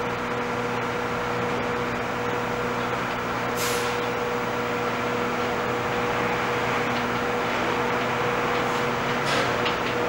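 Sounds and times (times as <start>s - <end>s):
subway train rumbling: 0.0s - 10.0s
brief hiss: 3.6s - 4.0s.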